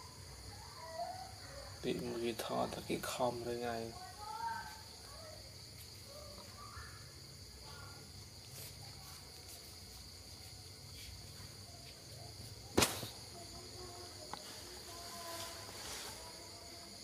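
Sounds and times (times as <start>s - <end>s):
sharp knock: 12.8s - 13.2s.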